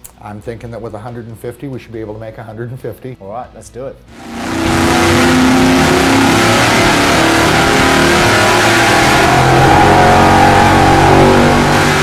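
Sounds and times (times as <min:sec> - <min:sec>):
engine at full throttle revving: 0:04.1 - 0:12.0.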